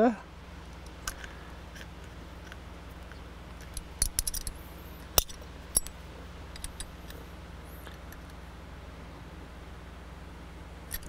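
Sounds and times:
steady low hum: 0.0s - 11.0s
wrench clicking on metal nut: 3.6s - 5.9s, 6.6s - 6.9s.

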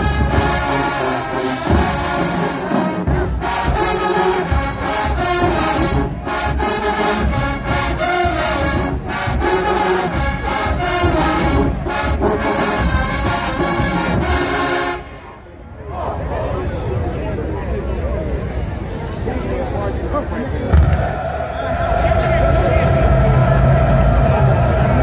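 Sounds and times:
marching band playing loud: 0.0s - 15.2s
brass section: 0.0s - 15.3s.

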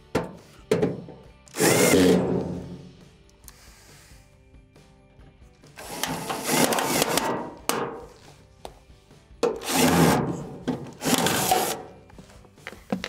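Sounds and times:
cordless drill driving screws: 1.5s - 2.4s, 5.8s - 7.5s, 9.6s - 10.4s, 11.0s - 11.9s.

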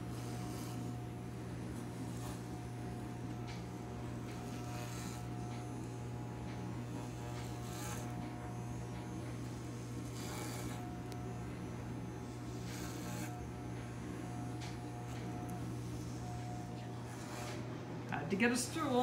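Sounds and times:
electric hair clippers humming: 0.0s - 19.0s
clipper blades rasping through hair: 1.7s - 2.7s, 3.3s - 18.2s.

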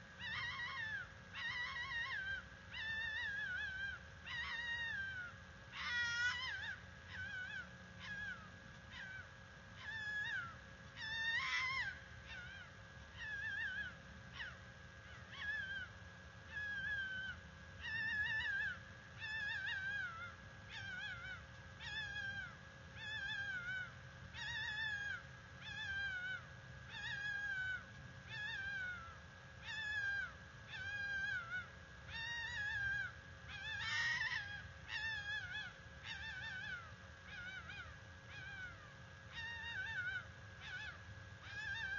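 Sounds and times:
fox screaming: 0.2s - 15.9s.

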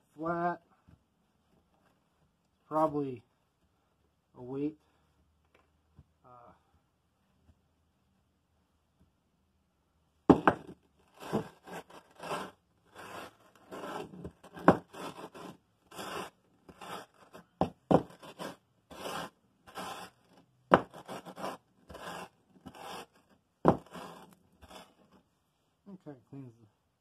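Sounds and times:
metal scraping on sandpaper: 11.1s - 25.2s.

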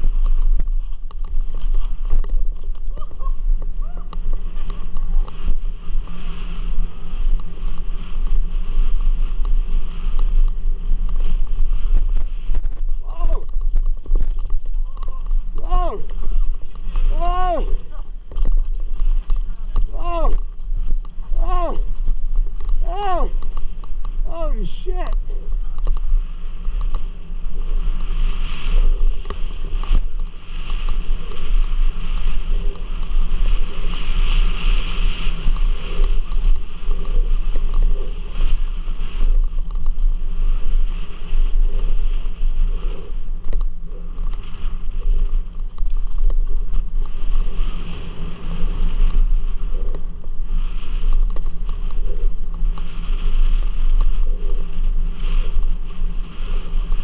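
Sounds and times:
bike rattling and knocking: 0.0s - 24.3s
tyres rumbling on dirt trail: 0.0s - 57.0s
wind buffeting microphone: 0.0s - 57.0s.

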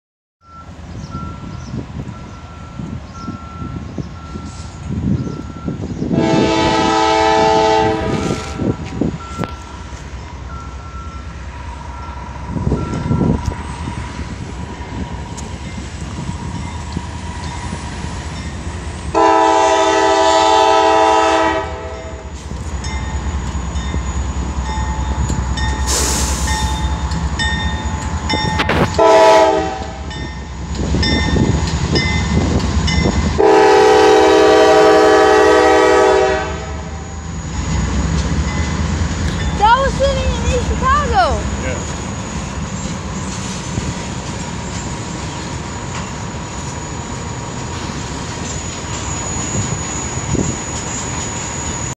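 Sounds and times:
locomotive engine rumble: 0.4s - 51.9s
locomotive horn blasts: 6.1s - 8.7s, 19.1s - 22.3s, 28.6s - 30.2s, 33.4s - 37.0s.

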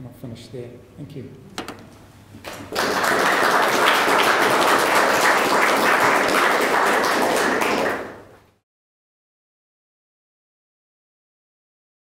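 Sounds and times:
audience applauding: 2.5s - 8.5s.

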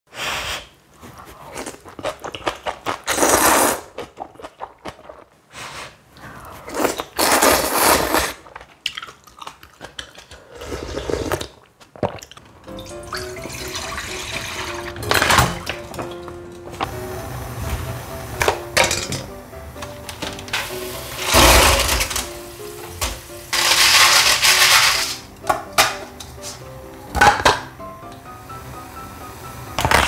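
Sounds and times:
crunching and chewing: 1.1s - 5.4s, 6.5s - 12.6s
loud slurping: 6.7s - 8.5s
background music: 12.6s - 30.0s.

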